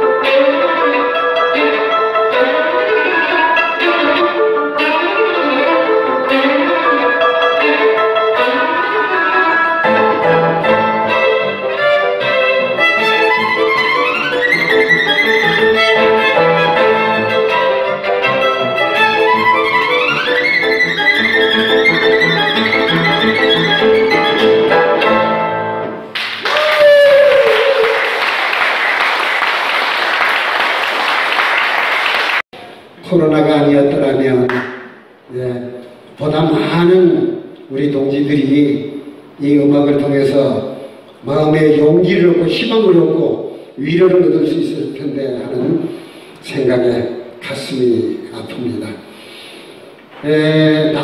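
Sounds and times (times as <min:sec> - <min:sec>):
solo violin melody: 0:00.0 - 0:26.0
bass accompaniment: 0:01.6 - 0:26.4
audience applause: 0:26.1 - 0:32.4.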